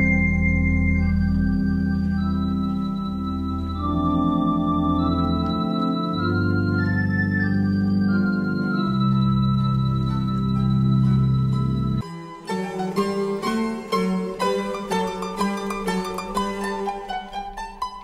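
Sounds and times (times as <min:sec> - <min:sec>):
organ playing slow chords: 0:00.0 - 0:17.4.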